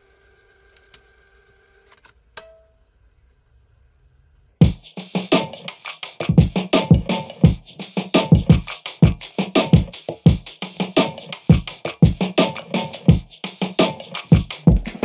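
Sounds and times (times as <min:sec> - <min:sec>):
music with electronic drum beat: 0:04.6 - 0:15.0.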